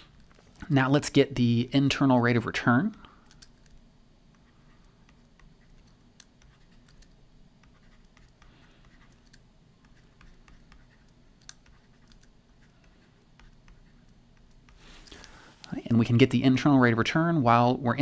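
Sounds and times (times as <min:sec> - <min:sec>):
stylus clicking and scratching on tablet: 0:03.2 - 0:15.4.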